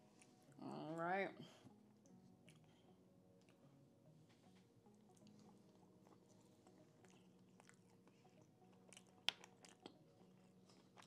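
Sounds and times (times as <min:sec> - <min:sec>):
wet chewing: 0:02.0 - 0:02.8, 0:04.9 - 0:11.0.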